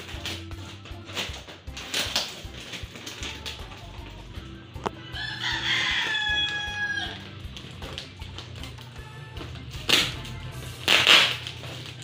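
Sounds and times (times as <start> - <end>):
plastic wrap crinkling: 0.0 - 4.4, 5.2 - 12.0
rooster crowing: 5.0 - 7.4.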